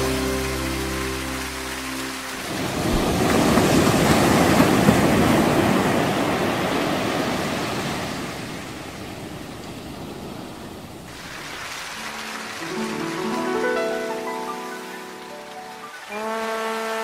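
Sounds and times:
wind and sea rushing: 0:01.9 - 0:12.9
wind buffeting microphone: 0:02.4 - 0:11.3.

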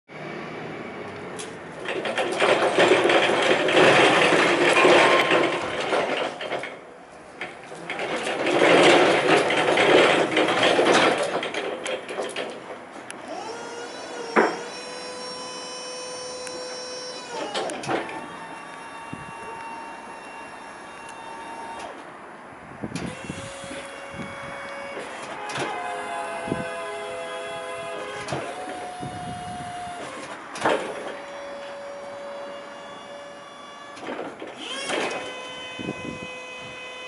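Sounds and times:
reach truck rattling: 0:01.4 - 0:22.1
hydraulic pump motor whine: 0:13.2 - 0:22.0, 0:22.8 - 0:37.0.

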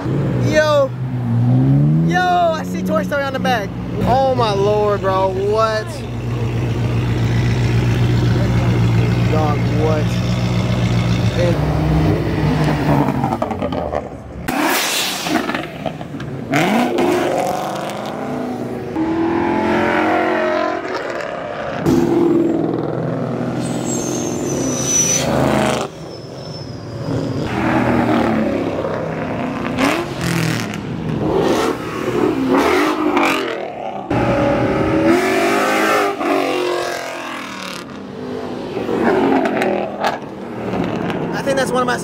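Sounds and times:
car engines revving past: 0:00.0 - 0:03.0, 0:06.1 - 0:26.1, 0:27.0 - 0:41.6
high falling whistle: 0:23.6 - 0:27.2.

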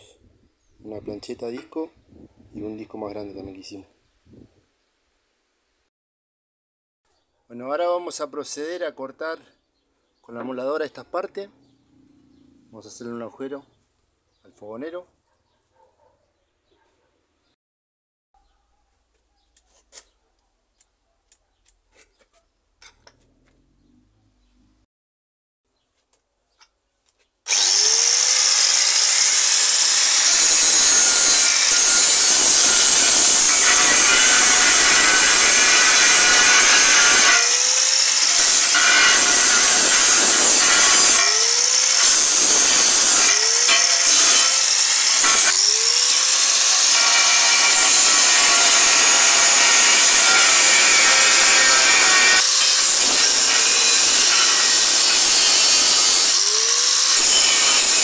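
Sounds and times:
angle grinder cutting metal: 0:27.5 - 0:58.0.

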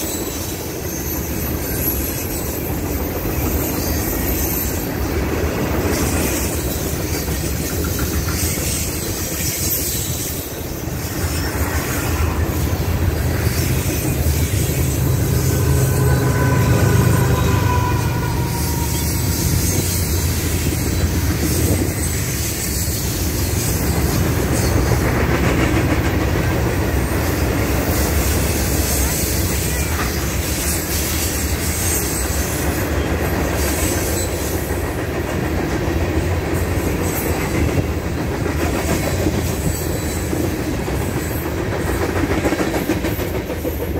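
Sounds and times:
high wheel squeal: 0:00.0 - 0:24.9
train wheels rumbling on rails: 0:00.0 - 0:43.9.

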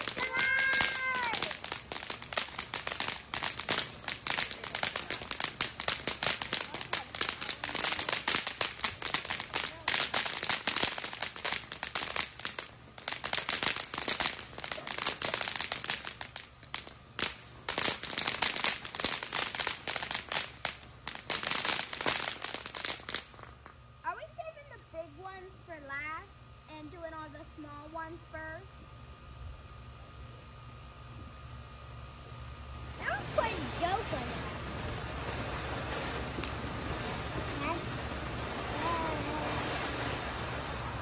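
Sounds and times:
fireworks crackling: 0:00.0 - 0:26.1, 0:32.5 - 0:41.0.

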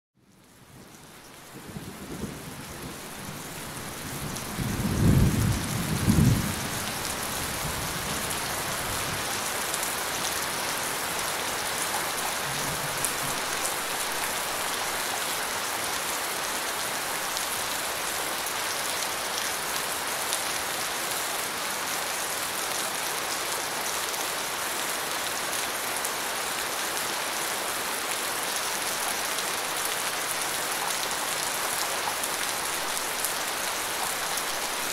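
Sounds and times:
steady rain: 0:00.2 - 0:34.9
low rumble of thunder: 0:01.5 - 0:09.3, 0:12.5 - 0:13.5.

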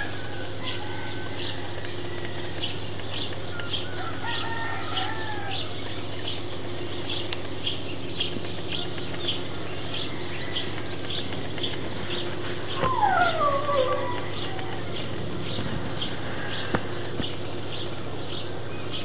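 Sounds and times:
distant rooster crowing: 0:00.0 - 0:06.0, 0:09.8 - 0:11.5, 0:12.3 - 0:15.2
low steady hum: 0:00.0 - 0:19.0.

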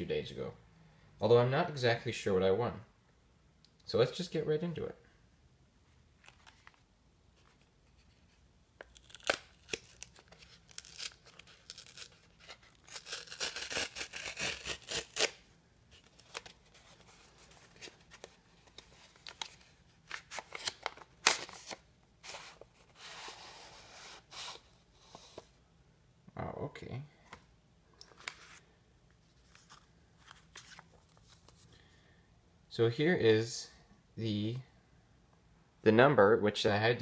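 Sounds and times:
cardboard tearing: 0:08.9 - 0:15.4.

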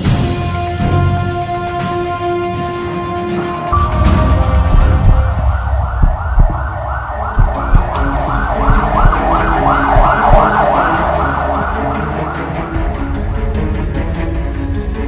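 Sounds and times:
ambulance siren yelping: 0:03.6 - 0:13.3.

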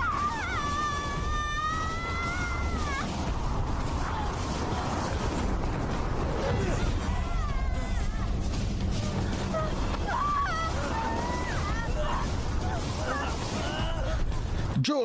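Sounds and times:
low rumble: 0:00.0 - 0:14.8
woman screaming: 0:10.0 - 0:12.3.

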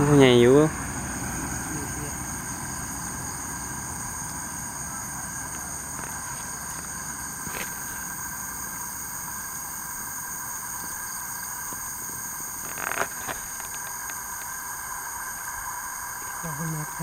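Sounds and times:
night insects trilling: 0:00.0 - 0:17.0
handling noise: 0:11.6 - 0:14.6.

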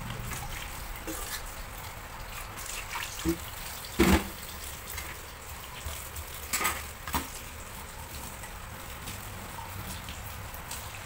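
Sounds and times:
plastic container being rinsed: 0:00.0 - 0:11.0
tap running onto dishes: 0:02.6 - 0:11.0.

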